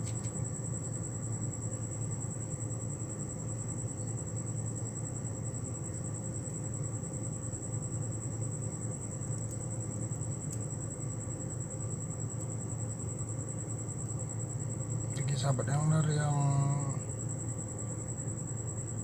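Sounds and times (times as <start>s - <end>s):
low background hum: 0.0s - 19.0s
high-pitched whine: 15.1s - 17.2s.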